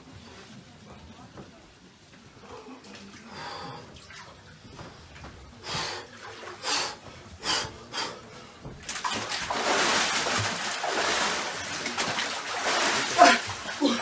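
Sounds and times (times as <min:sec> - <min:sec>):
water splashing: 0:08.8 - 0:14.0.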